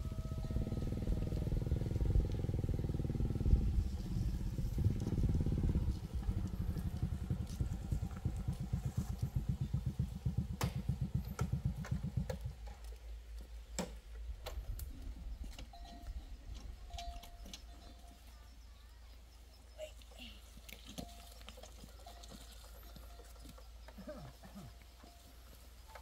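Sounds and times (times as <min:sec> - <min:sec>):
motorbike engine puttering: 0:00.0 - 0:18.3.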